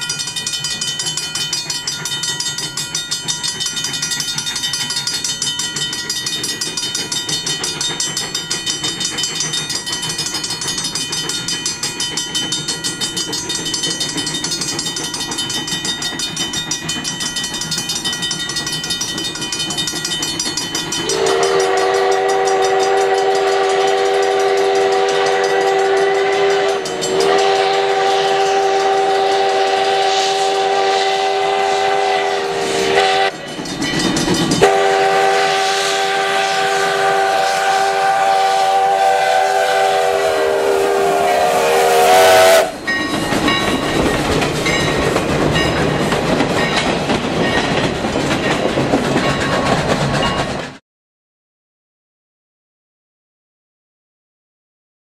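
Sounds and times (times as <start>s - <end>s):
crossing warning bell dinging: 0.0s - 50.8s
steam whistle blasts: 21.0s - 33.4s, 34.6s - 42.9s.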